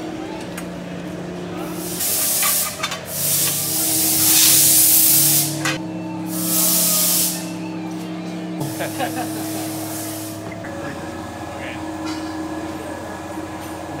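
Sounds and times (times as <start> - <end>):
steady low hum: 0.0 - 14.0
compressed air hissing: 1.6 - 7.7, 8.6 - 12.2.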